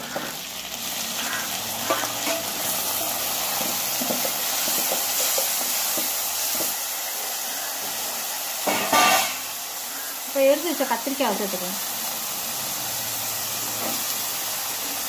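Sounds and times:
sizzling hiss in hot oil: 0.0s - 15.0s
metal spatula scraping pot: 1.2s - 5.8s.

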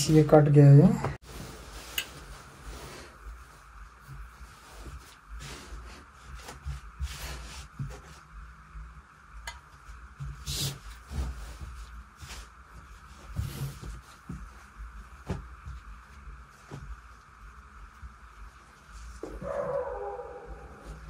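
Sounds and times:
cloth rustling: 1.2s - 8.3s.

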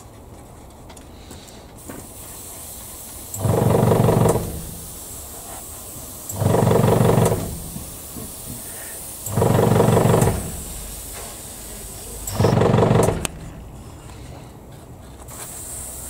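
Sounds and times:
airbrush hissing: 1.8s - 14.3s, 15.1s - 16.0s
loud low buzzes: 3.4s - 5.0s, 6.3s - 8.3s, 9.2s - 11.1s, 11.9s - 13.9s.

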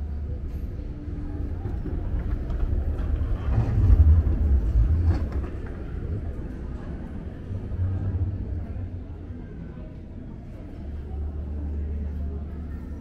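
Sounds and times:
passing street traffic rumble: 0.0s - 9.2s.

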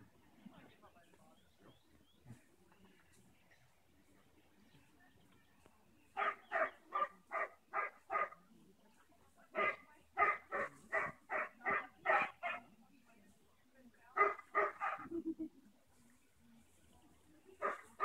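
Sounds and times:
dog barking: 6.2s - 8.4s, 9.6s - 12.7s, 14.2s - 15.1s, 17.6s - 18.0s.

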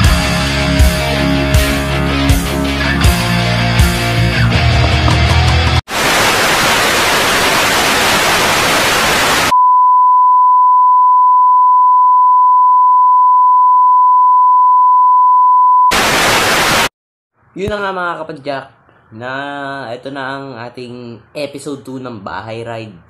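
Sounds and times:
television static hiss: 5.9s - 9.5s, 15.9s - 16.9s.

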